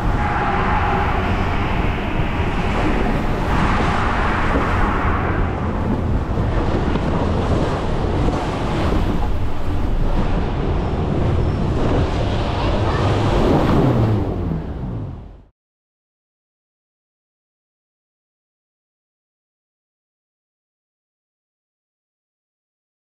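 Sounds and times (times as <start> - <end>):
wind buffeting microphone: 0.0 - 15.4
water rushing under raft: 0.0 - 15.5.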